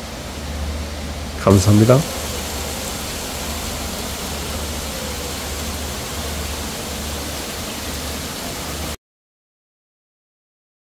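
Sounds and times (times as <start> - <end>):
fountain water splashing into pool: 1.4 - 9.0.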